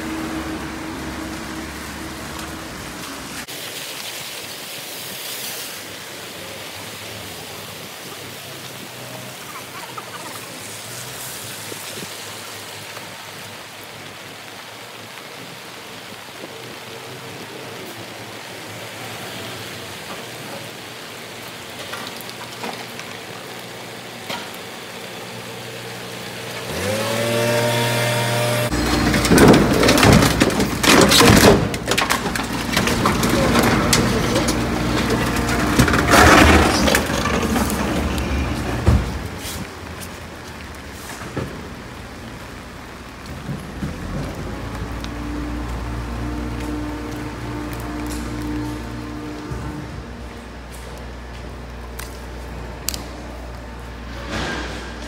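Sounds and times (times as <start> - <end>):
low vehicle hum: 0.0 - 3.5, 22.9 - 55.0
rain hissing on pavement: 0.0 - 55.0
rear loader clattering and knocks: 28.8 - 39.4.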